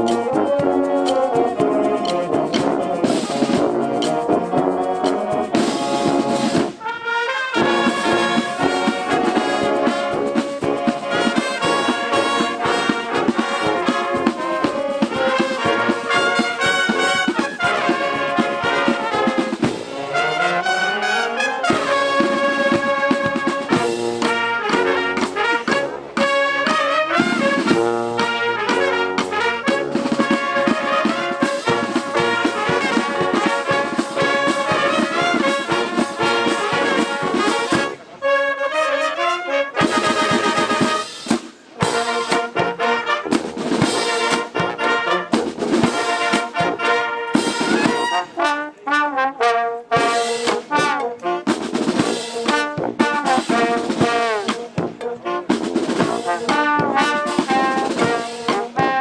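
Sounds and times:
brass band playing chords: 0.0s - 59.0s.

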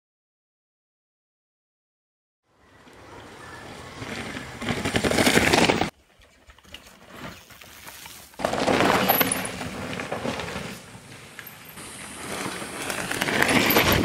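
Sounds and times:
bike tyres crunching on gravel: 3.0s - 14.0s.

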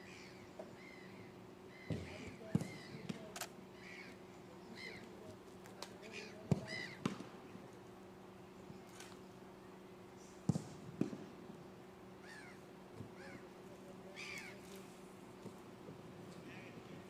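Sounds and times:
harsh crow-like bird calls: 0.0s - 5.1s, 6.0s - 7.1s, 12.2s - 14.7s
steady low hum: 0.0s - 17.0s.

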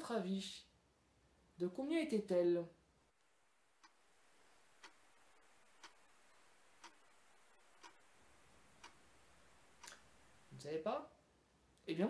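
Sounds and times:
clock ticking: 3.8s - 10.5s.

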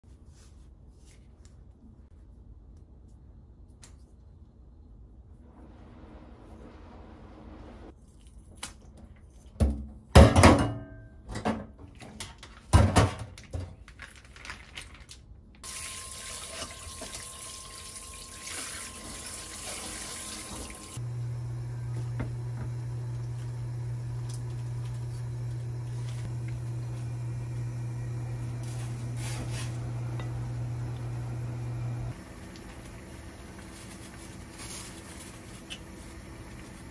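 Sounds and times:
knocks and clatters in a sink: 9.5s - 13.8s
plastic bag crinkling: 13.4s - 15.4s, 33.4s - 36.1s
tap water running: 15.6s - 33.7s, 35.3s - 36.9s
steady low hum: 21.0s - 36.9s.

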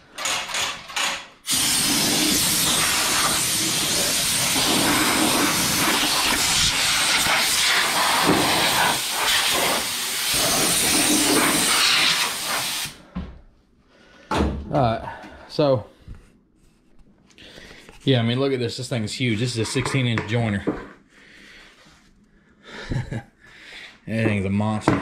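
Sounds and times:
air blow gun hissing: 1.5s - 13.0s.

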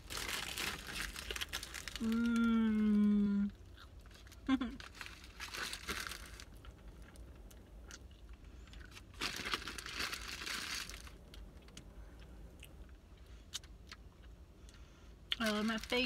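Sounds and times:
sandwich wrapper crinkling: 0.0s - 2.5s, 3.9s - 7.2s, 8.2s - 11.8s, 15.4s - 16.0s.

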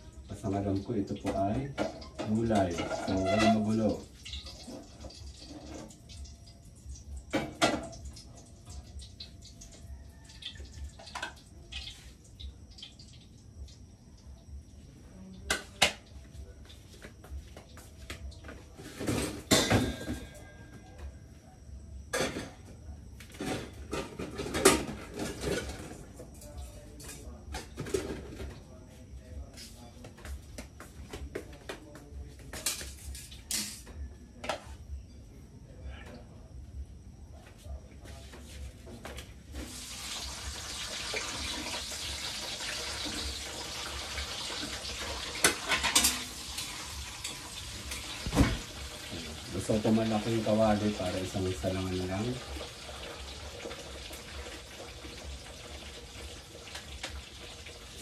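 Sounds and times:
eggplant sizzling in oil: 0.0s - 14.8s, 39.5s - 58.0s
metal kitchenware clanking: 1.2s - 5.9s, 19.0s - 20.4s, 23.4s - 26.0s, 45.4s - 48.7s
thump: 48.2s - 48.6s.

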